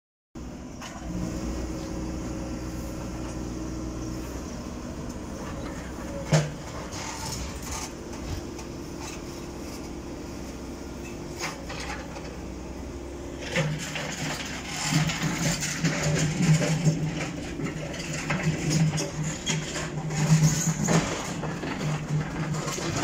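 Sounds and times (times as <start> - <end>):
machinery engine running: 0.4 - 23.0.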